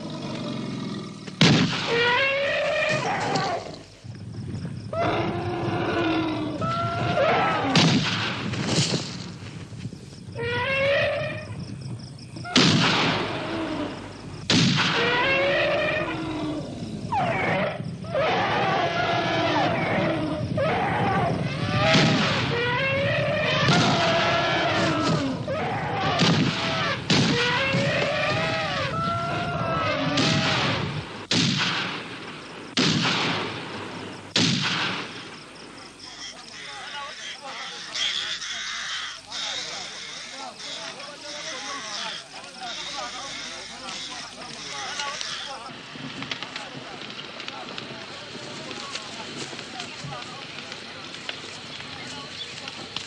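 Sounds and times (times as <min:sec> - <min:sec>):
elephant trumpeting and screaming: 0:00.0 - 0:03.9, 0:04.9 - 0:07.8, 0:10.4 - 0:11.6, 0:14.8 - 0:30.9, 0:36.1 - 0:45.7
loud rifle shots: 0:01.4 - 0:02.1, 0:12.6 - 0:13.3, 0:30.2 - 0:35.3.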